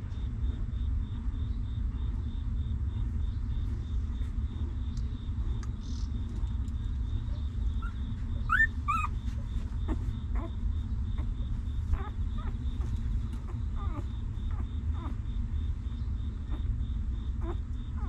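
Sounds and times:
steady low rumble: 0.0 - 18.0
newborn puppies squeaking: 7.7 - 10.6, 11.2 - 15.2, 17.4 - 18.0.

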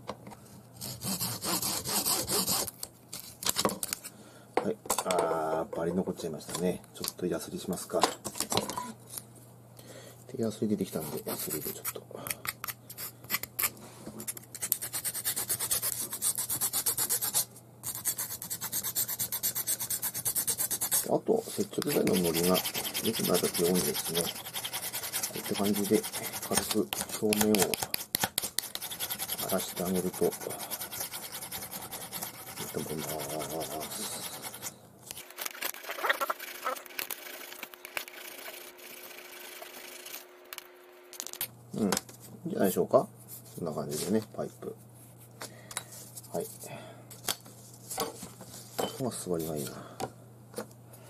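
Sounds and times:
metal file scraping tube: 21.8 - 34.7.

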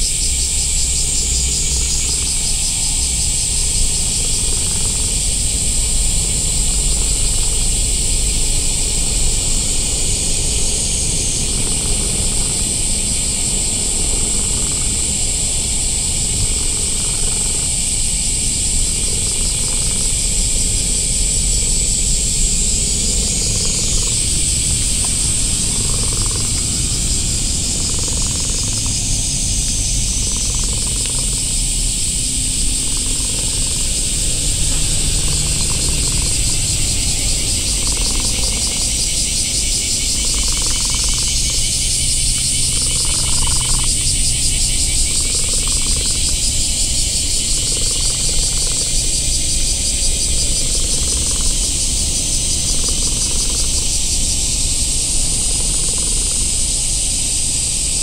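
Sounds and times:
high-pitched insect chorus: 0.0 - 58.0
low rumble: 18.8 - 43.1.

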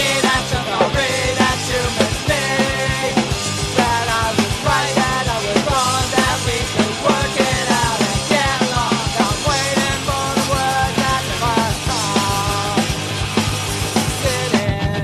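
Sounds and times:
drum beat: 0.0 - 15.0
punk rock band playing: 0.0 - 15.0.

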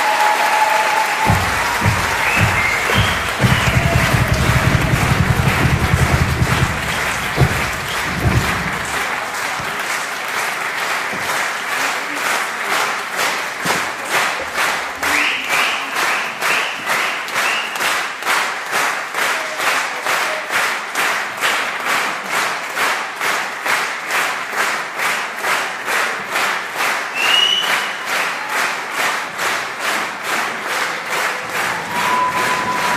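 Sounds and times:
crowd shouts: 0.0 - 8.8, 31.6 - 32.9
audience applauding: 0.0 - 32.9.

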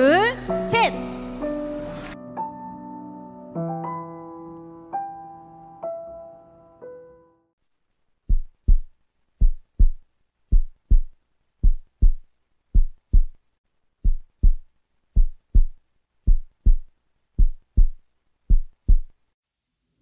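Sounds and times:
heartbeat thumps: 8.3 - 13.4, 14.0 - 19.2.

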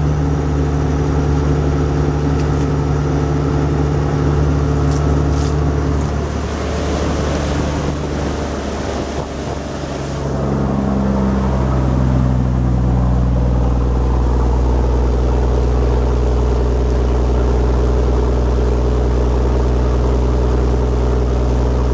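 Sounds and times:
marine diesel engine running: 0.0 - 21.9.

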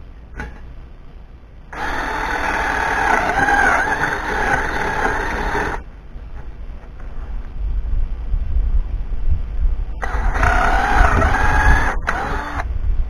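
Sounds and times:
cordless drill boring into wood: 1.8 - 5.8, 10.0 - 12.7.

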